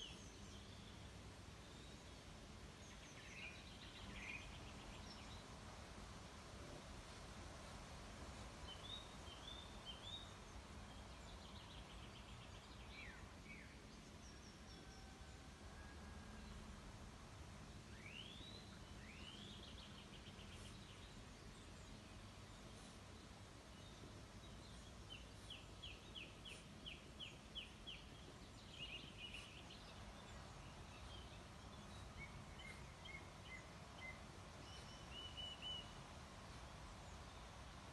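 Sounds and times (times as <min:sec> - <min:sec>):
low background hiss: 0:00.0 - 0:37.9
distant birds chirping: 0:17.4 - 0:37.9.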